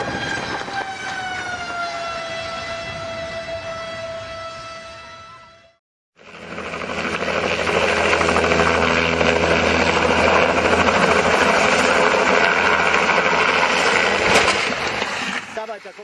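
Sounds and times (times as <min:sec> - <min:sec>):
helicopter engine and rotor: 0:06.2 - 0:15.8.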